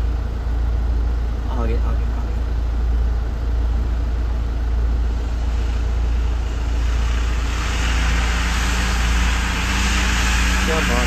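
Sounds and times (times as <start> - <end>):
engine rumbling at low speed: 0.0 - 11.0
bright hiss: 5.1 - 11.0.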